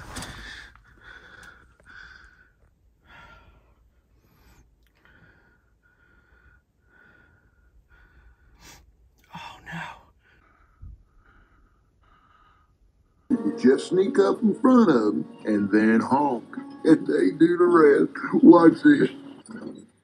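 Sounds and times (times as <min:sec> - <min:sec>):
person breathing hard: 0:00.0 - 0:13.0.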